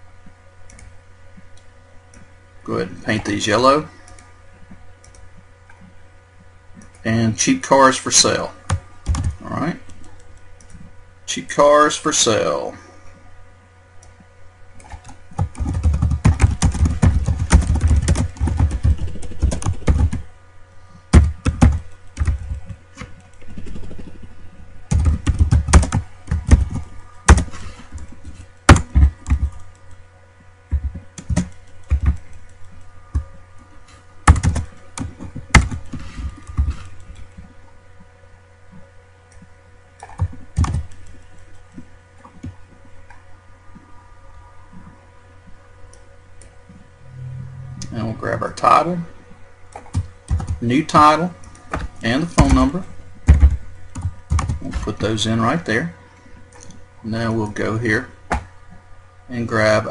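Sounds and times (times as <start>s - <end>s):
typing on computer keyboard: 14.8s - 20.2s, 21.2s - 22.7s, 24.9s - 27.5s, 30.8s - 32.9s, 34.3s - 35.9s, 49.8s - 50.6s, 53.3s - 54.8s.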